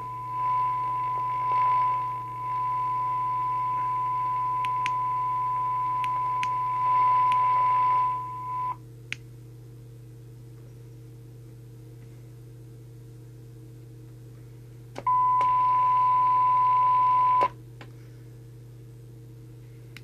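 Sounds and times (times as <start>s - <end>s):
radio test tone: 0.0s - 8.8s.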